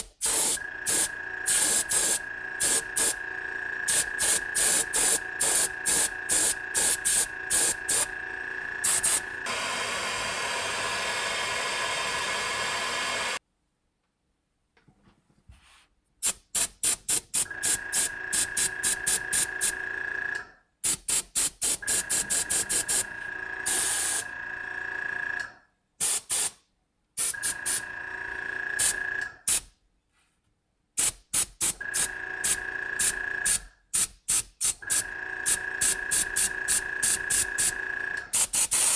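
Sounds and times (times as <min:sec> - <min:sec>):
airbrush spraying hiss: 0:00.0 - 0:03.2, 0:03.9 - 0:08.1, 0:08.8 - 0:09.3.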